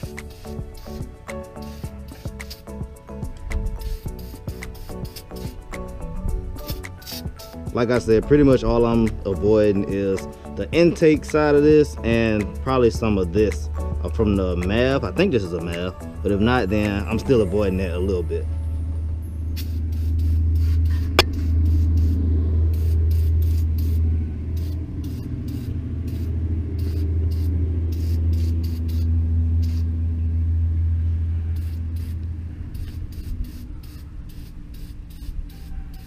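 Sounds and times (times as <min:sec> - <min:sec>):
aerosol can spraying bursts: 0:00.0 - 0:08.0, 0:19.6 - 0:24.0, 0:24.6 - 0:29.9, 0:31.6 - 0:32.2, 0:32.8 - 0:36.0
steady low rumble: 0:00.0 - 0:36.0.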